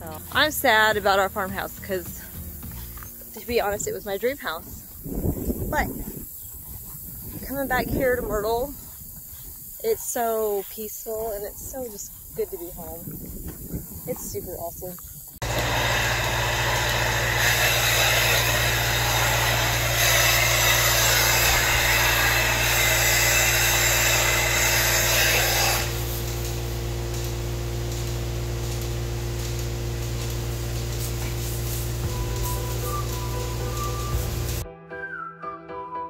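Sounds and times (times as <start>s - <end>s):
milking machine humming: 15.4s - 34.6s.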